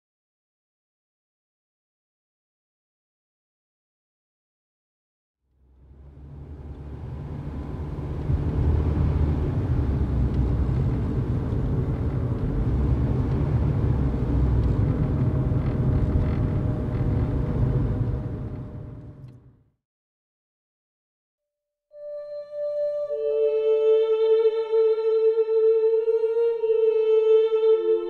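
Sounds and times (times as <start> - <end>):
low steady rumble: 5.6 - 19.6.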